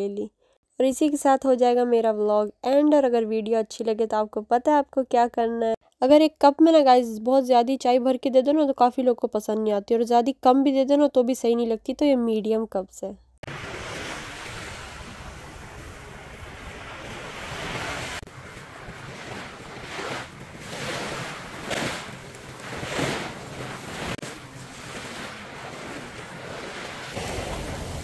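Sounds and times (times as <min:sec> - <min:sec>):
sea waves washing on sand: 0:13.4 - 0:28.0
wind on microphone: 0:13.5 - 0:28.0.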